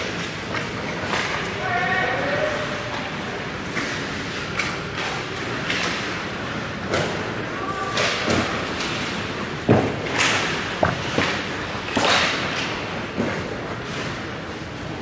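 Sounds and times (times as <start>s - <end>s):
hockey sticks knocking puck: 7.9s - 13.5s.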